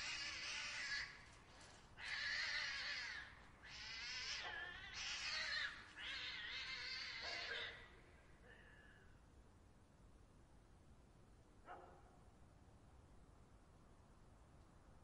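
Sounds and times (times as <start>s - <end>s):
cats yowling in a fight: 0.0s - 8.1s.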